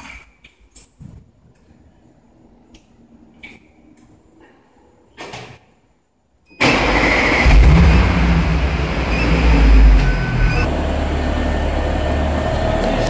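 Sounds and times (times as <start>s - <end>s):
car engine starting and idling: 6.6s - 13.0s.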